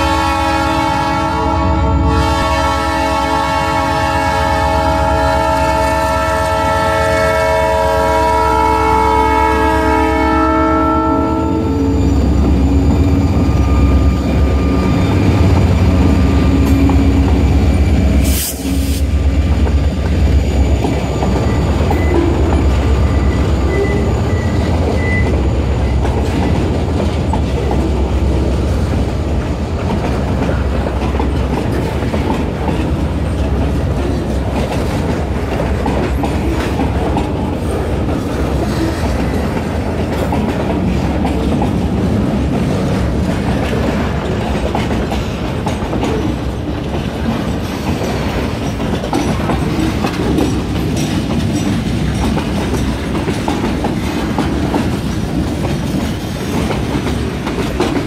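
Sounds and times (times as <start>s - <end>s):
locomotive horn blast: 0.0s - 12.0s
freight train cars rolling: 0.0s - 58.0s.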